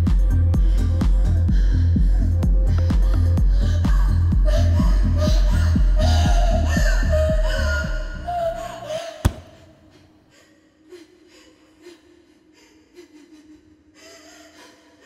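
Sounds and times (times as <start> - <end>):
sharp thump: 9.2 - 10.0.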